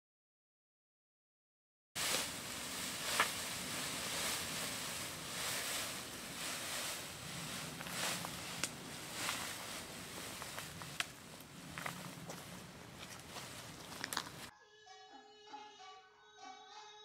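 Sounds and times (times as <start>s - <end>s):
plastic sheeting rustling: 2.0s - 14.5s.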